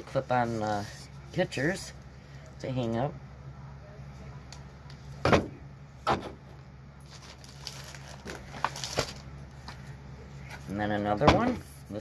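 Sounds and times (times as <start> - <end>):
steady low hum: 0.0 - 12.0
packaging crinkling: 7.0 - 9.3.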